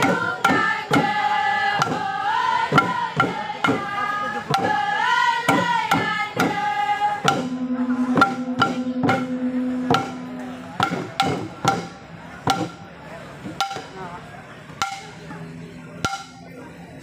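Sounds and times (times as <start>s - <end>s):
group singing: 0.0s - 10.2s
hand drums beating: 0.0s - 12.8s, 13.5s - 14.0s, 14.8s - 15.2s, 16.0s - 16.4s
long low held note: 6.6s - 11.7s.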